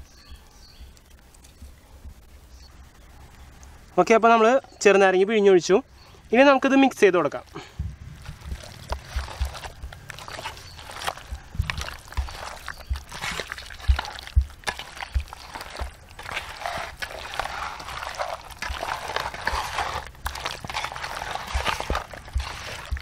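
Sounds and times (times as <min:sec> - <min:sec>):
wet mixing of chicken by hand: 0:07.0 - 0:23.0
soft low thumps: 0:07.6 - 0:16.3, 0:19.5 - 0:23.0.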